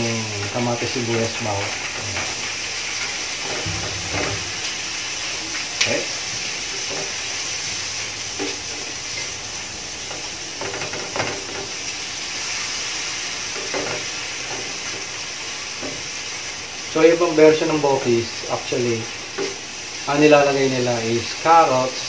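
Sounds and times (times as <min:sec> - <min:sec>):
vegetables sizzling in hot oil: 0:00.0 - 0:22.0
spatula scraping and stirring: 0:00.4 - 0:16.4.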